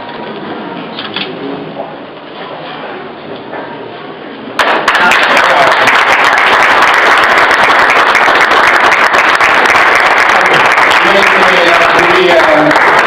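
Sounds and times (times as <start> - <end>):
crowd applauding: 4.6 - 13.0.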